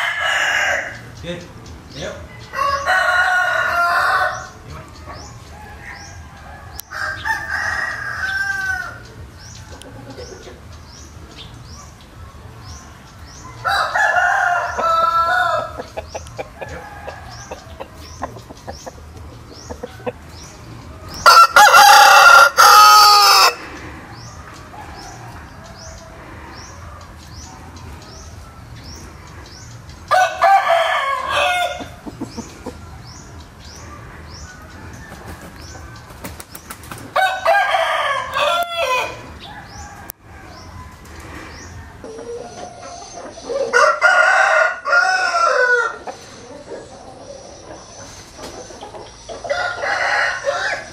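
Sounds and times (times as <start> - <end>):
rooster crowing: 0.0 - 1.0, 2.4 - 4.6, 5.6 - 9.0, 13.6 - 18.2, 21.2 - 23.6, 30.1 - 32.0, 37.2 - 40.9, 43.7 - 46.2, 49.5 - 50.9.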